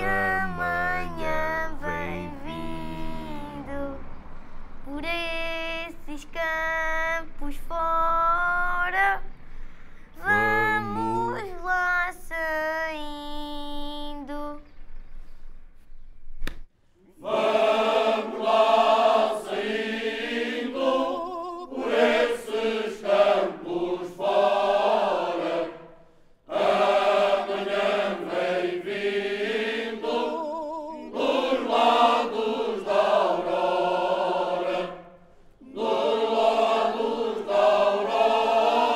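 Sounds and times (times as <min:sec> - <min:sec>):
person singing held notes: 0:00.0 - 0:03.8, 0:10.2 - 0:11.6
mixed choir singing a cappella: 0:00.0 - 0:04.0, 0:10.2 - 0:11.4, 0:17.1 - 0:38.9.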